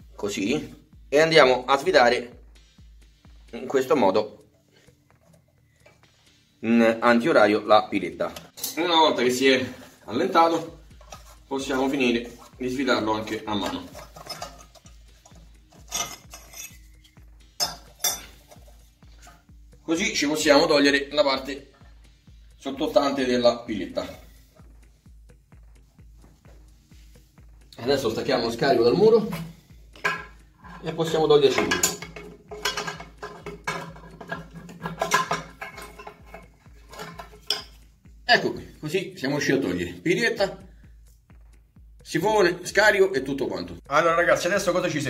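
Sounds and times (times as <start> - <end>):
background music with steady beat: 0.0 - 45.0
metal pipe parts clinking: 8.3 - 9.0, 9.8 - 19.5, 29.2 - 37.9
metal clinking on porcelain: 13.9 - 14.9, 15.8 - 16.8, 17.6 - 18.5, 31.5 - 37.8.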